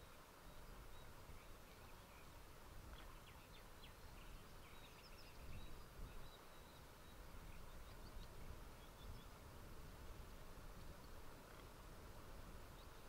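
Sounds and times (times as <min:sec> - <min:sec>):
faint bird chirps: 0:00.0 - 0:09.4.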